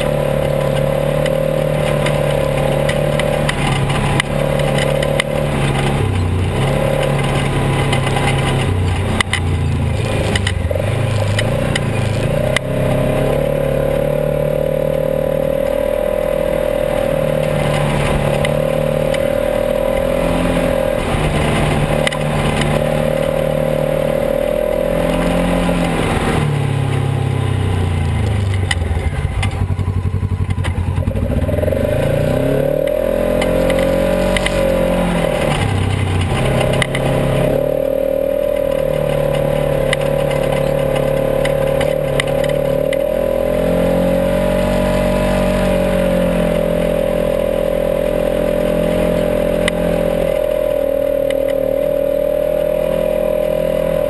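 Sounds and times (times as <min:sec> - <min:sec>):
rattles and knocks over bumps: 0:00.0 - 0:12.8, 0:17.2 - 0:23.8, 0:32.7 - 0:37.8, 0:38.5 - 0:43.1
off-road vehicle engine running: 0:00.0 - 0:54.0.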